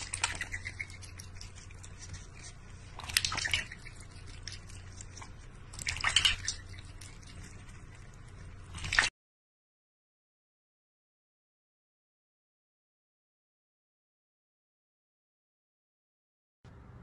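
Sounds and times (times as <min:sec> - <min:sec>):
water splashing in a metal bowl: 0:00.0 - 0:02.0, 0:02.8 - 0:09.1.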